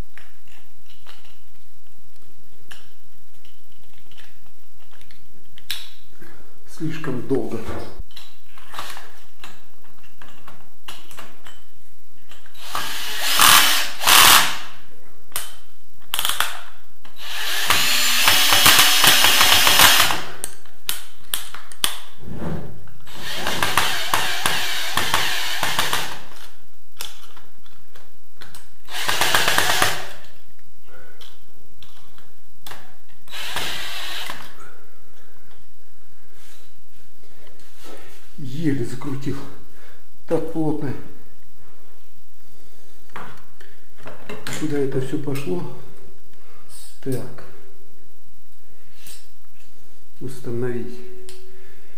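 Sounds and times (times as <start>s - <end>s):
cordless drill driving a screw: 12.6s - 14.6s, 17.2s - 20.2s, 23.1s - 26.2s, 28.9s - 30.2s, 33.3s - 34.5s.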